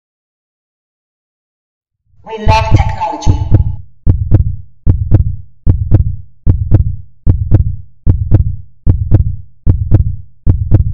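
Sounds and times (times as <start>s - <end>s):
heartbeat double thumps: 2.4s - 10.9s.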